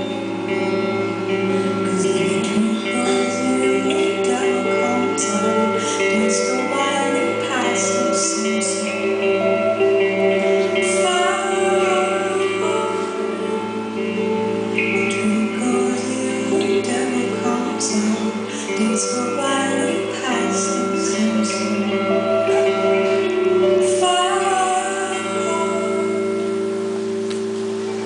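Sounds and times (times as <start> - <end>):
woman singing: 0.0 - 27.0
electric guitar: 0.0 - 28.0
steady held tones: 0.0 - 28.0.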